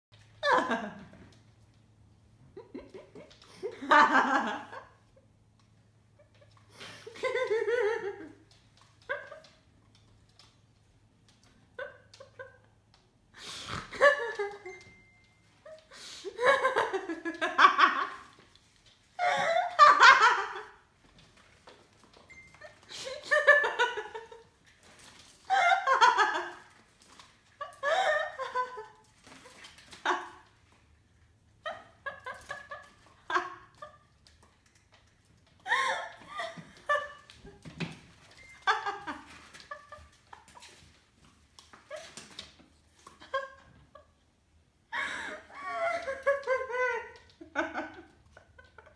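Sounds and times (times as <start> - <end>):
person laughing: 19.2 - 20.8, 35.6 - 37.2, 44.9 - 48.9.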